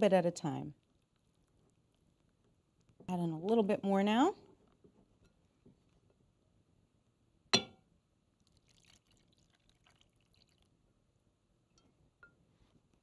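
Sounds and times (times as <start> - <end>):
clink against glass bowl: 7.6 - 7.8
liquid pouring: 8.3 - 11.0.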